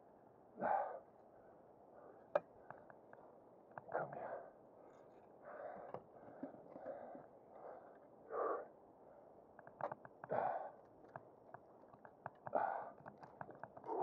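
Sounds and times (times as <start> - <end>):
man huffing breaths: 10.2 - 10.8, 12.5 - 13.1.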